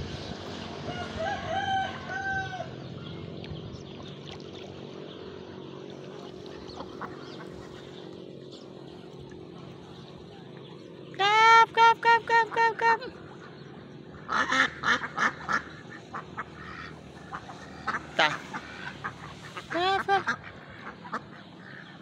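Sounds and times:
low background hum: 0.0s - 22.0s
rooster crowing: 0.9s - 2.8s.

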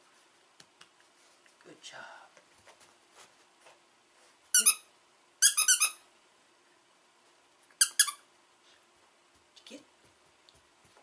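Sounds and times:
dog toy squeaking: 4.6s - 6.0s, 7.8s - 8.2s.

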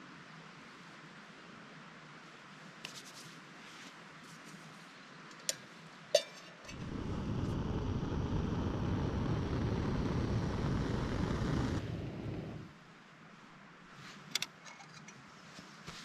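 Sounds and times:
stove flame hissing: 6.7s - 12.8s.

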